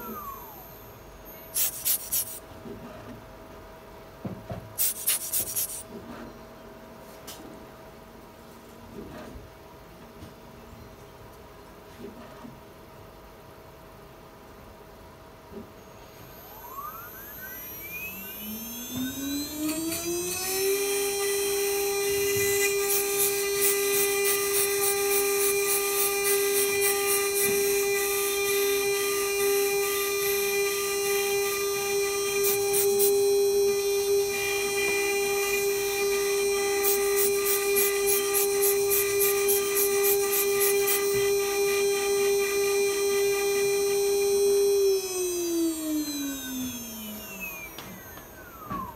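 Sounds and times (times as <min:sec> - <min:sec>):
rotary grinder whining: 0:00.0 - 0:02.4, 0:04.8 - 0:05.8, 0:15.8 - 0:48.9
grinder bit rasping and clicking: 0:01.6 - 0:02.4, 0:04.8 - 0:05.8.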